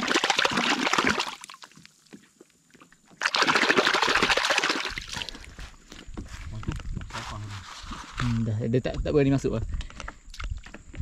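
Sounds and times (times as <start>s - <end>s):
water splashing and sloshing: 0.0s - 5.6s.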